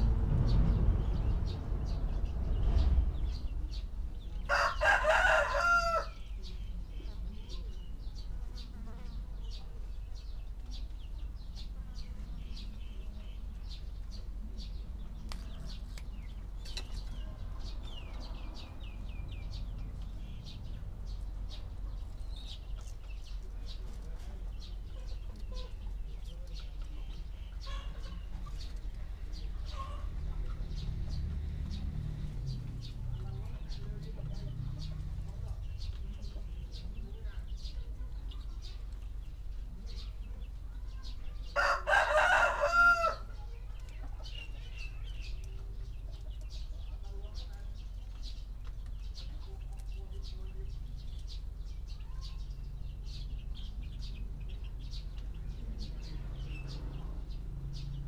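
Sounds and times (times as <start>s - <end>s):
rooster crowing: 4.5s - 6.2s, 41.6s - 43.3s.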